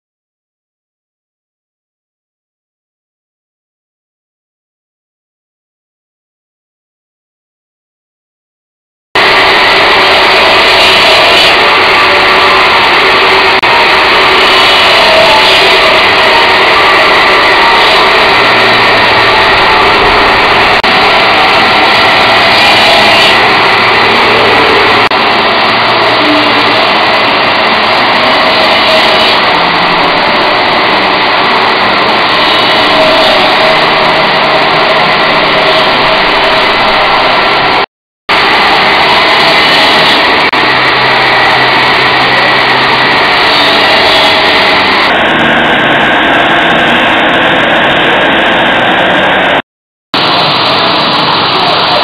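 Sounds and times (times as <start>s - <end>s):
motor running: 9.2s - 37.8s
saw blade grinding stone: 9.2s - 45.1s.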